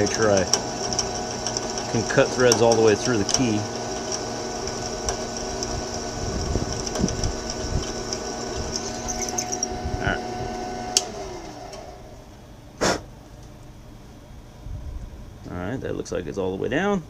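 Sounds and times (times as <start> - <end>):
drill press running: 0.0 - 12.5.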